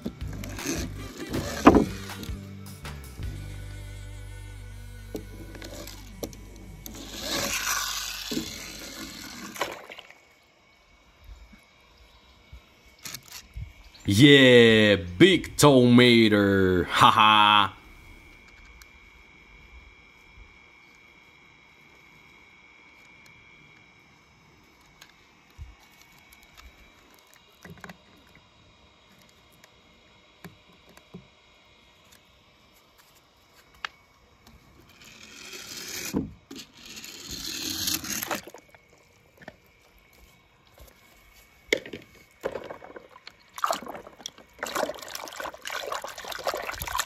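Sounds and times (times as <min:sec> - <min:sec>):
water splashing in plastic tub: 0:09.5 - 0:10.2, 0:42.4 - 0:47.0.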